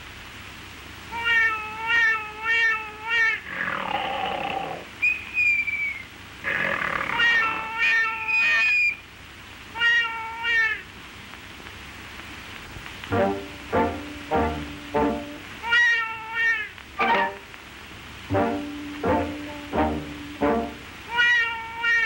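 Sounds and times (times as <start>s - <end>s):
cartoon meow-like cries: 1.1s - 3.5s, 6.5s - 9.0s, 9.7s - 10.9s, 15.6s - 17.3s, 21.1s - 22.0s.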